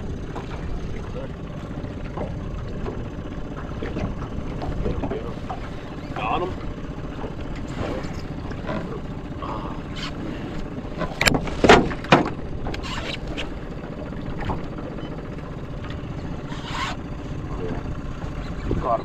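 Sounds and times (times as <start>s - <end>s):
small boat low noise: 0.0s - 19.0s
fishing gear knocking on boat: 0.2s - 9.2s, 10.9s - 12.8s.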